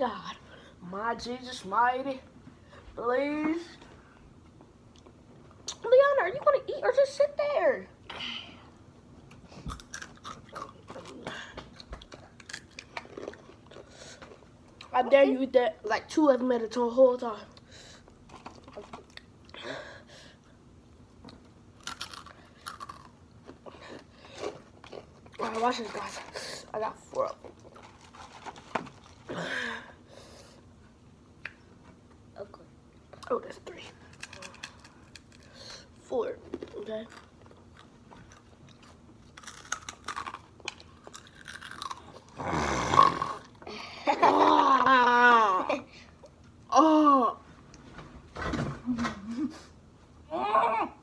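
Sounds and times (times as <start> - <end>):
child crunching chips: 9.7 - 11.2, 12.1 - 14.5, 21.8 - 29.4, 34.0 - 35.9, 36.5 - 43.5
crunching tortilla chips: 21.8 - 23.6, 27.5 - 29.3, 37.1 - 42.4.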